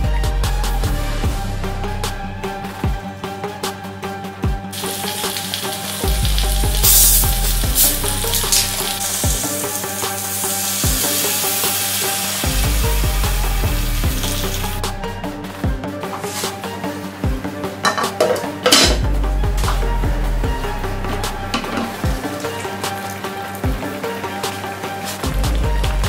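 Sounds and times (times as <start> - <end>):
electronic background music: 0.0 - 26.0
soda pouring with hiss: 4.7 - 14.8, 21.5 - 26.0.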